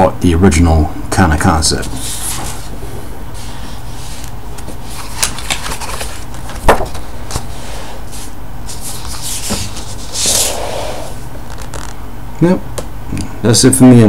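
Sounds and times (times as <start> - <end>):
low background hum: 0.0 - 14.0
book pages turning: 1.8 - 2.8, 3.4 - 12.0.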